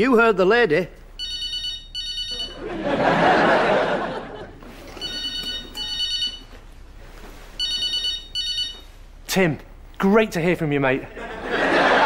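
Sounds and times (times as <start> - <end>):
electronic telephone ringing: 1.2 - 2.6, 4.9 - 6.6, 7.6 - 8.9
studio audience laughing: 2.5 - 5.0, 11.1 - 12.0.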